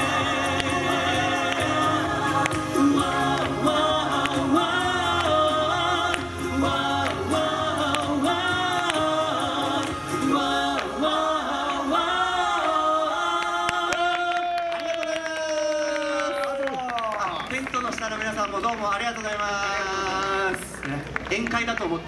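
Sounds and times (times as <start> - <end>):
guitar accompaniment: 0.0 - 13.6
men singing in harmony: 0.0 - 14.4.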